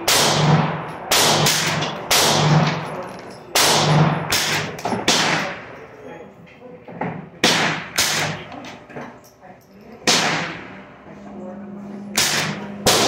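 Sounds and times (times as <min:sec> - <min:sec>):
rifle shots with echo: 0:00.0 - 0:05.7, 0:07.4 - 0:08.5, 0:10.0 - 0:10.7, 0:12.2 - 0:13.0.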